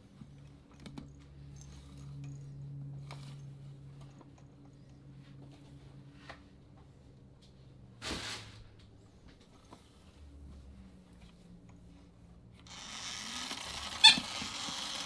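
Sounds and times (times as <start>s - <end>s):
toy electric motor humming: 12.6s - 15.0s.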